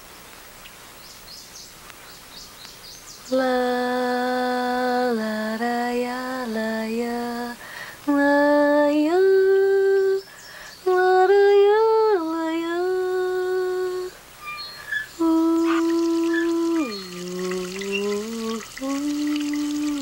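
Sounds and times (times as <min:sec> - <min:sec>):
woman singing wordlessly: 0:03.3 - 0:20.0.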